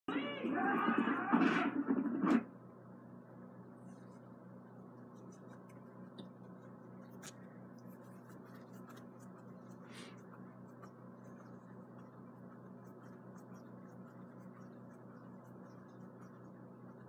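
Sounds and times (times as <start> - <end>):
low electrical hum: 0.1 - 17.0
faint clicks and scratches: 3.9 - 17.0.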